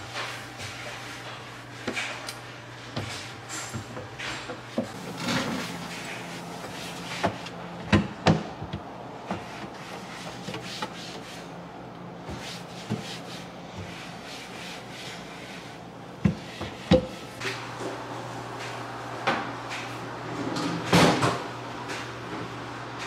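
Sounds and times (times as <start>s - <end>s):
cloth rubbing wooden cabinet: 4.9s - 7.6s.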